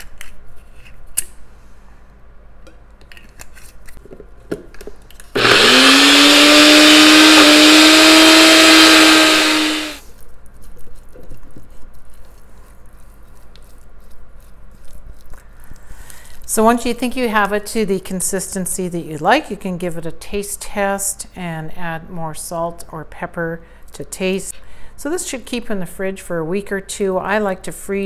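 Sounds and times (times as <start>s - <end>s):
blender motor running: 5.4s - 10.0s.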